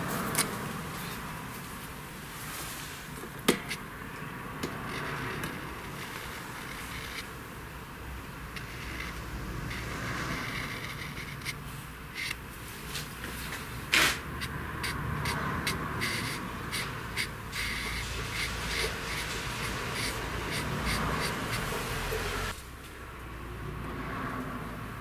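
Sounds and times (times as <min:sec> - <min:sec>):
marker rubbing on brass: 0:08.6 - 0:11.6, 0:14.0 - 0:22.5.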